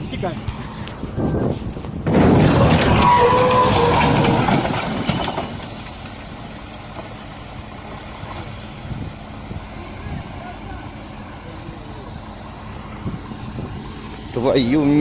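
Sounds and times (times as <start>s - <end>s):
truck crash metal crunching: 2.0s - 6.4s
short squeals: 2.4s - 5.6s.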